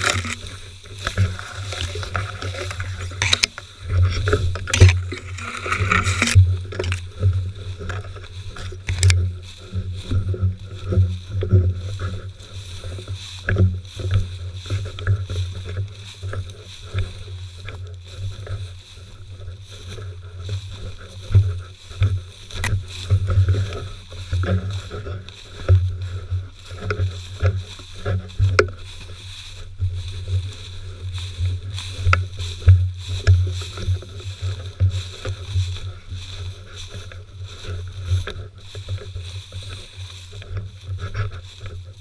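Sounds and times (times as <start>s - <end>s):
stems snapping: 0.0s - 9.8s, 22.4s - 23.2s
dry grass rustling: 0.0s - 42.0s.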